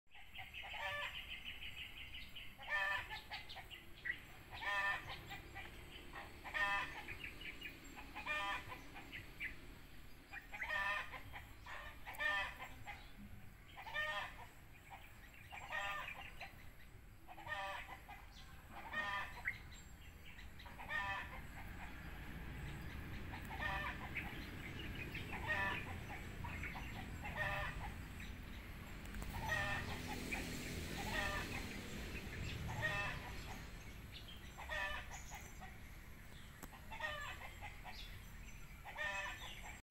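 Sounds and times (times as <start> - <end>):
bird calling: 10.3 - 39.8.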